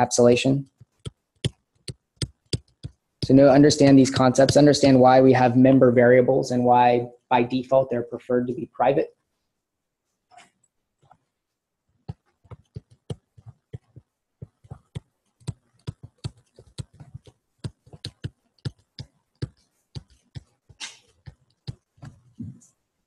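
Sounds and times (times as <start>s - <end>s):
stylus tapping on tablet screen: 0.7s - 5.0s, 12.0s - 22.3s.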